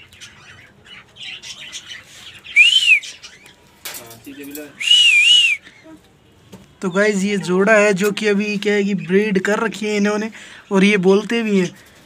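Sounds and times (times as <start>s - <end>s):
parakeets squawking: 0.0s - 3.6s.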